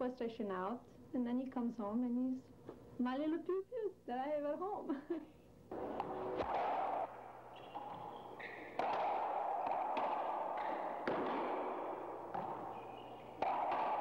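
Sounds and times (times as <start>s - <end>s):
racquetball hits: 5.7s - 14.0s
shoe squeaks: 7.5s - 8.8s.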